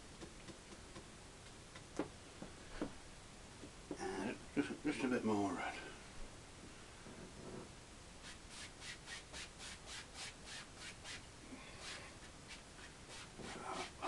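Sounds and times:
paint brush scrubbing canvas: 0:11.8 - 0:14.0.

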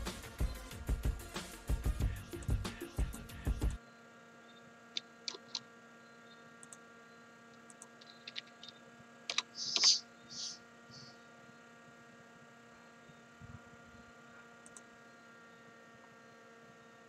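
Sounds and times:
steady electrical hum: 0:00.0 - 0:17.0
keyboard and mouse clicks: 0:05.0 - 0:05.6, 0:07.7 - 0:10.6
short hisses: 0:09.4 - 0:11.1.

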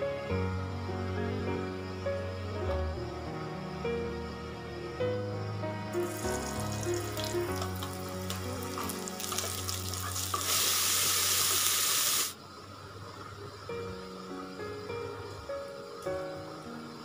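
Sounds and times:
grain sizzling in oil: 0:05.9 - 0:17.0
oil crackling in pot: 0:06.0 - 0:12.4.

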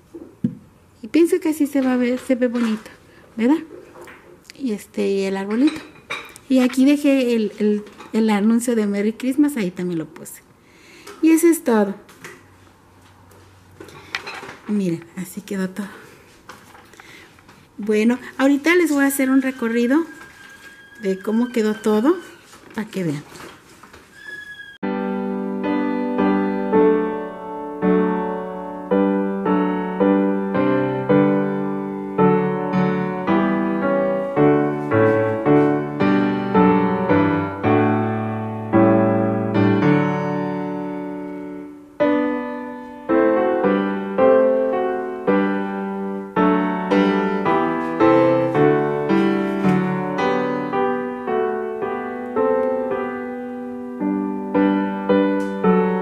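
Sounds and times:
piano music: 0:18.5 - 0:22.6, 0:24.2 - 0:56.0.

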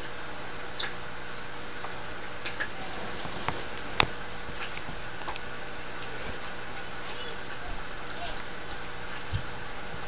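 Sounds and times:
small irregular clicks: 0:00.8 - 0:07.2.

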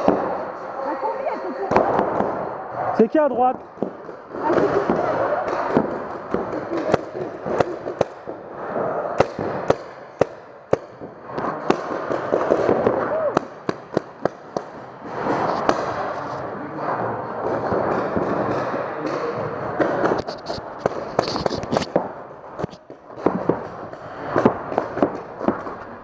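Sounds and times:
paintball markers firing: 0:03.6 - 0:08.4, 0:09.2 - 0:16.2, 0:17.4 - 0:26.0.

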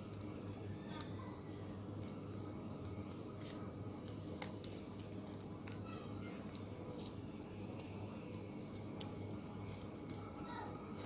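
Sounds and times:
low background hum: 0:00.0 - 0:11.0.

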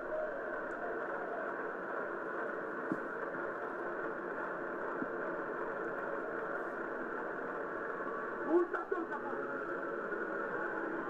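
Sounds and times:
muffled stadium crowd murmur: 0:00.0 - 0:11.0
faint clicks: 0:00.6 - 0:01.3.

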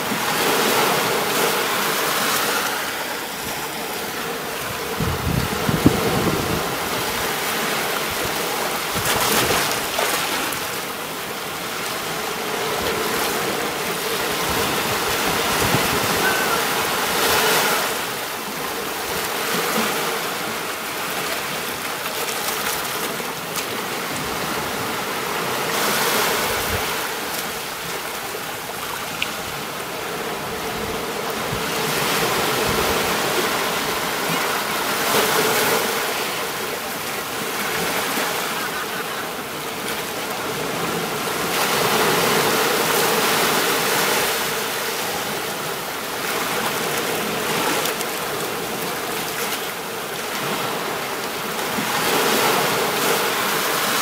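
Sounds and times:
sea waves breaking on beach: 0:00.0 - 0:54.0.

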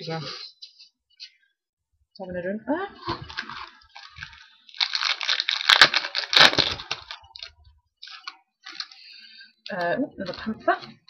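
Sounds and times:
foil wrappers crinkling: 0:03.0 - 0:10.6.

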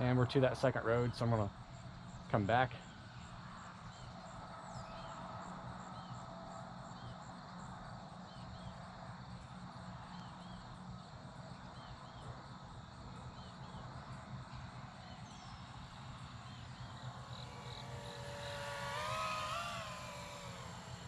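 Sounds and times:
low steady hum: 0:13.1 - 0:21.0.

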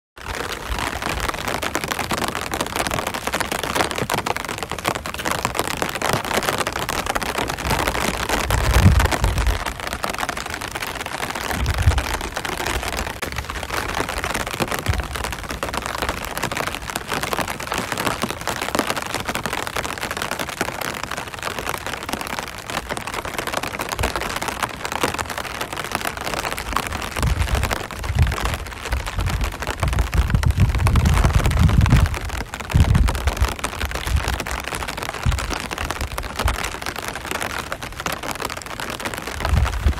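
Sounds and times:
rain on an umbrella: 0:00.2 - 0:39.9.

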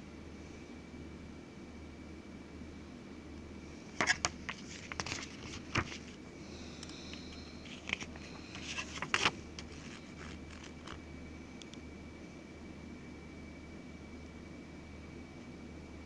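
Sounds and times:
faint steady hum: 0:00.0 - 0:16.0
paper pages rustling: 0:04.0 - 0:06.2, 0:07.1 - 0:11.0.

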